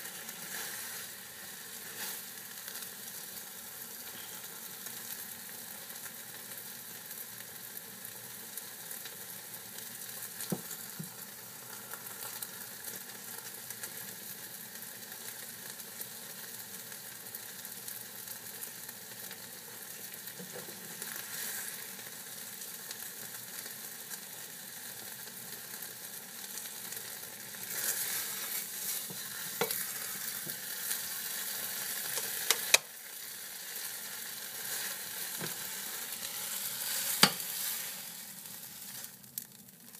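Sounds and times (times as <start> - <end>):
eggs sizzling in a frying pan: 0.0 - 39.9
spatula scraping a pan: 0.3 - 2.4, 27.7 - 32.9, 34.6 - 39.1.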